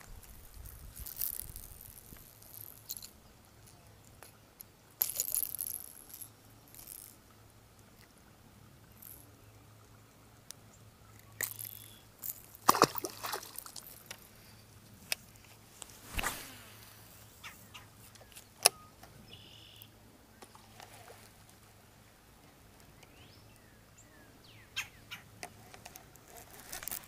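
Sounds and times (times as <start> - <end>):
fishing rod and reel handling: 0.0 - 8.2, 9.0 - 9.4, 10.5 - 19.2, 20.4 - 21.7, 25.3 - 27.0.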